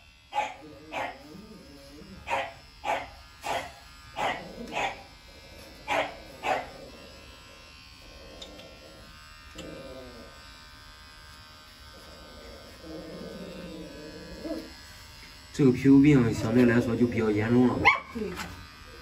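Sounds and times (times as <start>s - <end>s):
electric pet clippers buzzing: 0.0s - 19.0s
dog barking: 0.3s - 1.2s, 2.3s - 5.0s, 5.9s - 6.7s, 17.8s - 18.2s.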